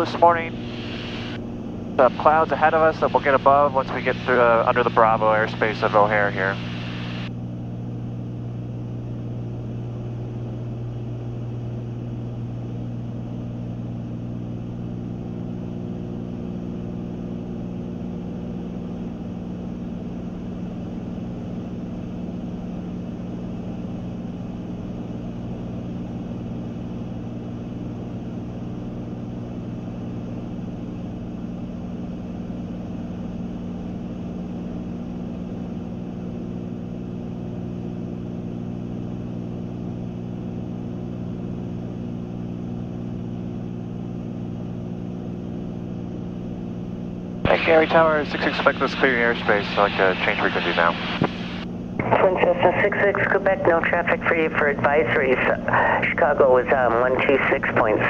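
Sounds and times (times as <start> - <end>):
aircraft engines droning: 0.0 - 12.5, 47.5 - 58.0.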